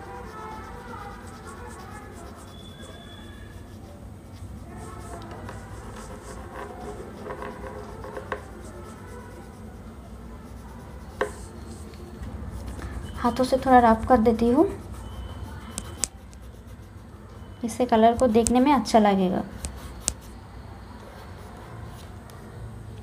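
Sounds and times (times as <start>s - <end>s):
pastel crayon scratching on paper: 0.0s - 22.6s.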